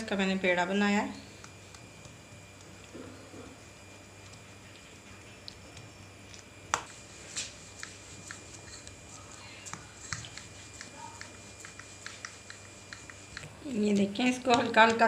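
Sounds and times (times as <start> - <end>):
hands pressing dough: 6.7 - 13.5.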